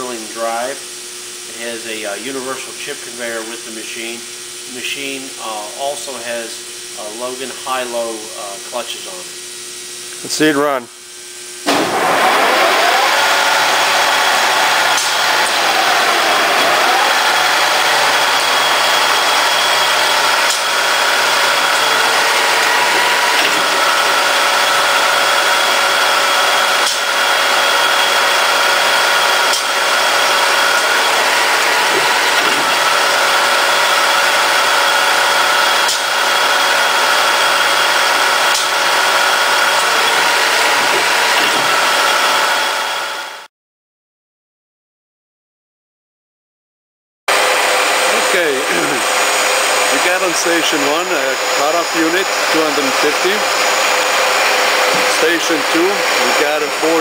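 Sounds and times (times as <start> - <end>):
metal-cutting machines whining: 11.7 - 43.5, 47.3 - 57.0.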